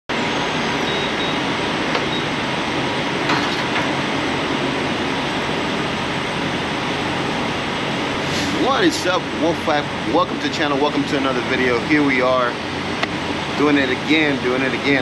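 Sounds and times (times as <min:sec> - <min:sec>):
steady running noise: 0:00.1 - 0:15.0.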